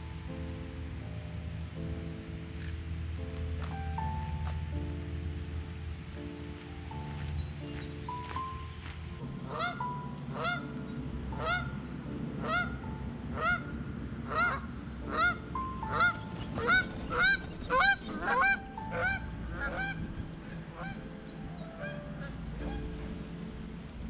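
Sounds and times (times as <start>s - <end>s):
geese honking: 9.4s - 23.4s.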